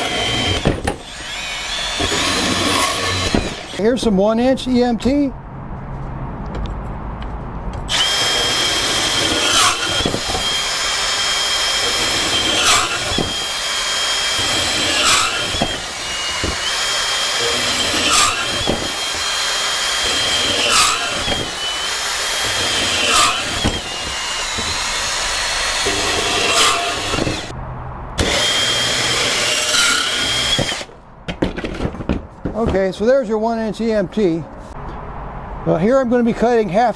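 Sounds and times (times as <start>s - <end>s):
band saw cutting metal conduit: 0.0s - 4.1s, 7.8s - 27.5s, 28.2s - 31.0s.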